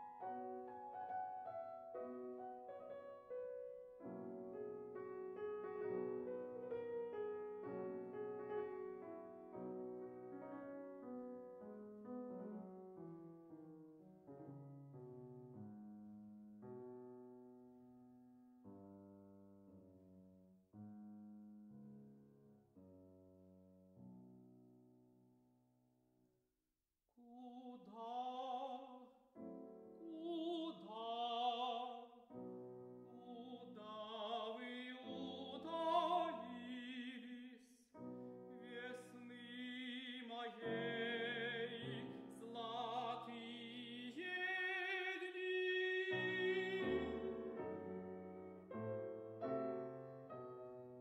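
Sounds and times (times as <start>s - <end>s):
piano accompaniment: 0.0s - 25.0s, 29.4s - 31.0s, 32.3s - 37.2s, 38.0s - 51.0s
operatic tenor singing: 30.0s - 32.1s, 33.2s - 37.8s, 38.6s - 47.6s.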